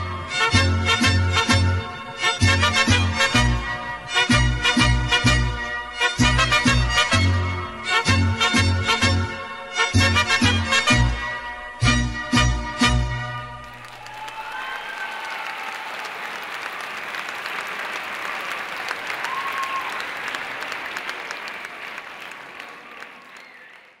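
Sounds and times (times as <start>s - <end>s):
audience applauding: 13.6s - 24.0s
scattered cheers: 13.7s - 24.0s.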